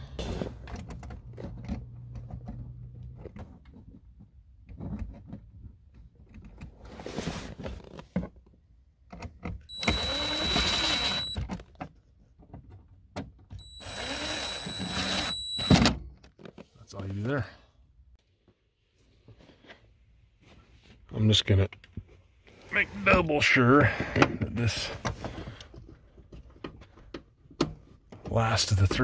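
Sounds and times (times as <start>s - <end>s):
cordless impact driver whining: 9.7s - 11.4s, 13.6s - 15.9s.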